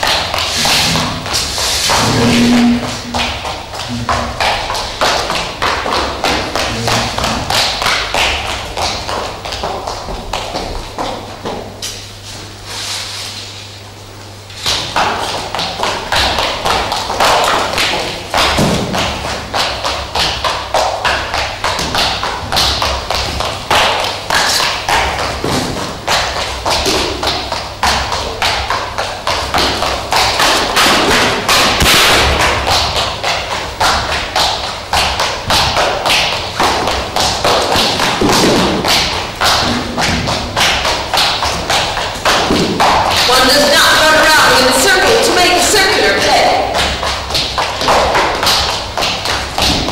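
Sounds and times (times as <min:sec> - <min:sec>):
footsteps on stage floor: 0:00.0 - 0:49.9.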